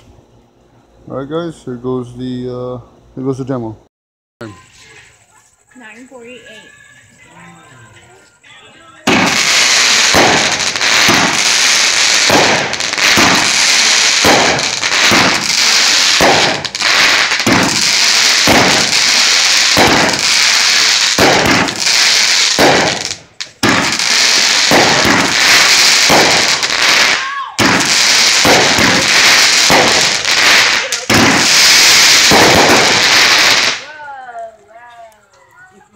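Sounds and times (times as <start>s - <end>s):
continuous hiss: 0.0s - 35.9s
firework launch bangs: 9.0s - 33.9s.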